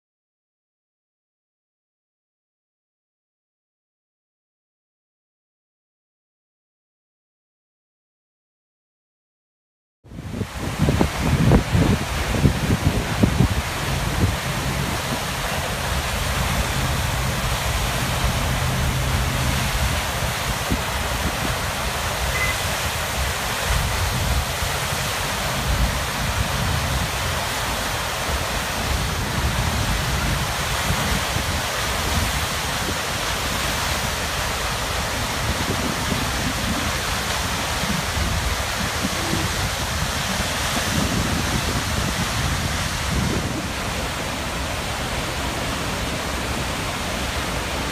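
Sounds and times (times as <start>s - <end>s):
water rushing from dam outlet: 10.1s - 47.9s.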